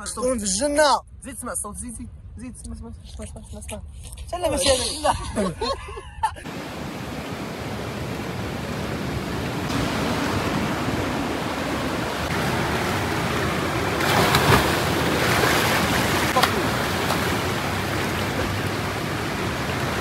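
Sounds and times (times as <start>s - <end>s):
wave splash: 6.4s - 20.0s
surf breaking against rocks: 6.5s - 20.0s.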